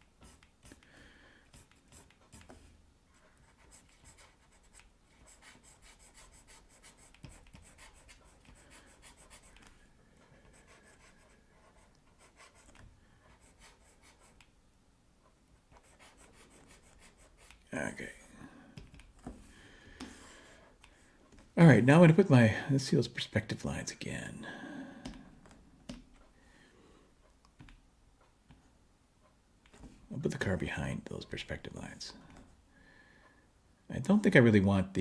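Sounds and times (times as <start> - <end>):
stylus scratching on tablet: 0.0 - 0.8, 1.5 - 14.4, 15.7 - 17.7.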